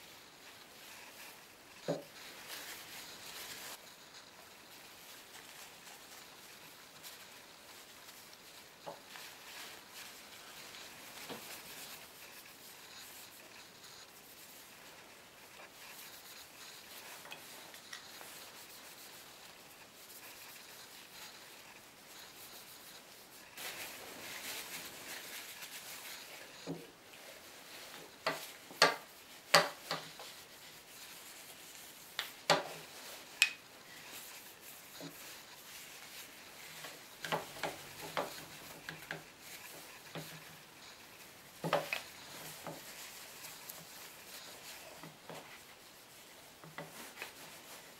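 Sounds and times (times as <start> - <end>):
cloth rubbing wood: 0.0 - 47.9.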